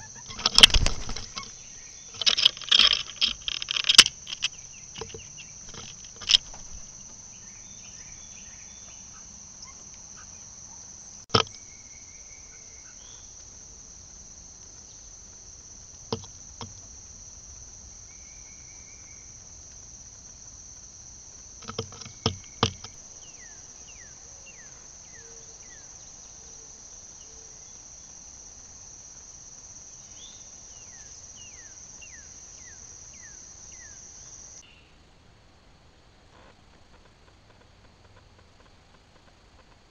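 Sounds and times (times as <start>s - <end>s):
bird chirping: 0.0s - 13.4s
insects droning: 0.0s - 39.9s
sharp clicks: 0.2s - 1.5s, 2.1s - 6.8s.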